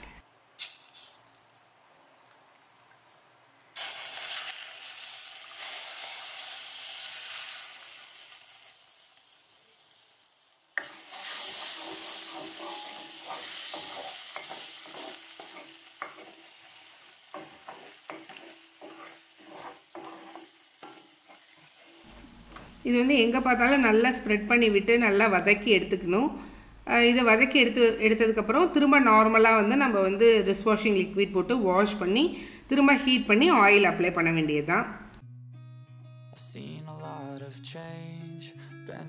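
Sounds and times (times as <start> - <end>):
egg sizzling in a hot wok: 3.8 - 22.1
wooden spatula scraping iron pan: 10.8 - 22.2.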